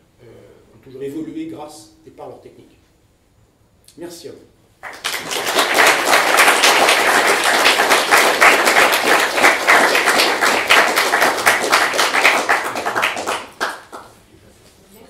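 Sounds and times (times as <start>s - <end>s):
audience applauding: 4.8s - 14.2s.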